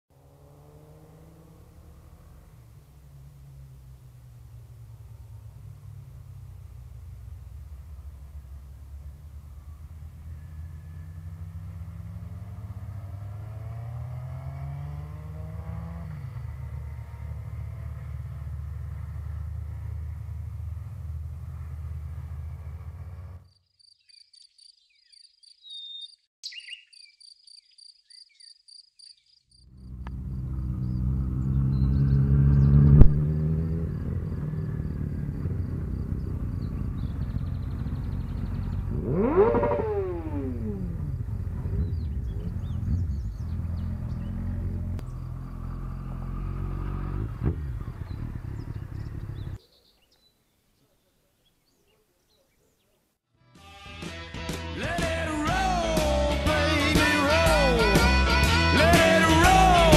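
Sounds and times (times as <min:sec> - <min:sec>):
motorcycle engines revving: 0:00.1 - 0:23.5, 0:29.7 - 0:49.6, 0:54.4 - 0:59.9
motorcycle passing by: 0:00.1 - 0:23.5, 0:29.6 - 0:49.6, 0:54.0 - 0:59.9
insect chirping: 0:23.4 - 0:31.6, 0:33.6 - 0:46.4.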